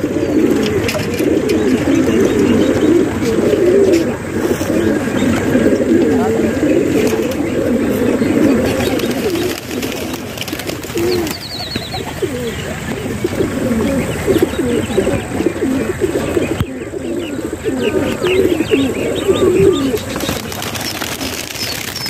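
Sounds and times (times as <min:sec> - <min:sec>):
pigeons cooing: 0:00.0 - 0:22.0.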